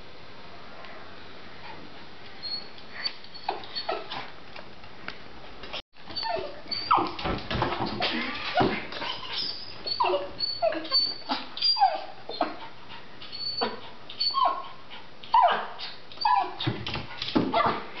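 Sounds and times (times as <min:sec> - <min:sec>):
small dog whining and yelping: 0:02.4 - 0:04.2, 0:06.1 - 0:07.2, 0:09.1 - 0:16.7.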